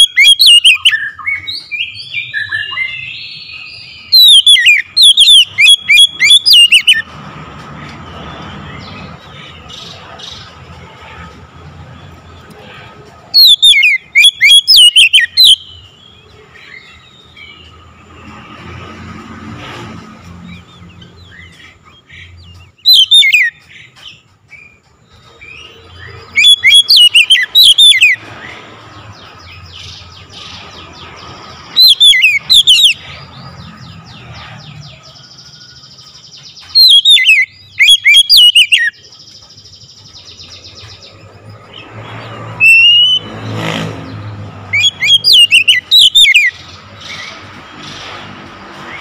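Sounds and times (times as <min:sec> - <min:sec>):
bird whistling sharply: 0:42.6 - 0:43.2.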